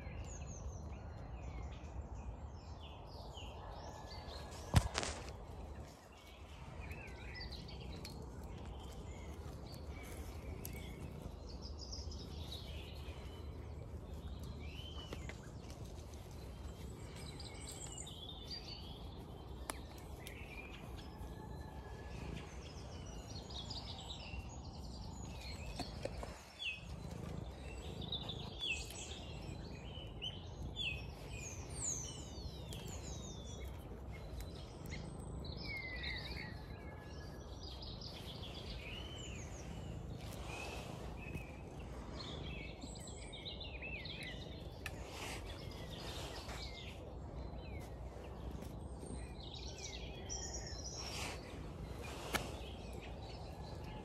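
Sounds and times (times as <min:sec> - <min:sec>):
songbirds singing and calling: 0:00.0 - 0:54.0
low background rumble: 0:05.3 - 0:54.0.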